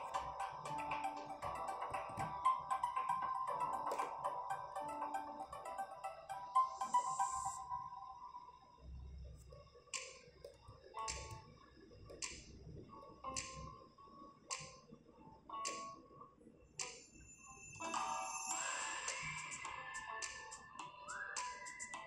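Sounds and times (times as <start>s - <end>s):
soft ticking beat: 0.0s - 7.6s
faint held notes: 0.0s - 8.6s.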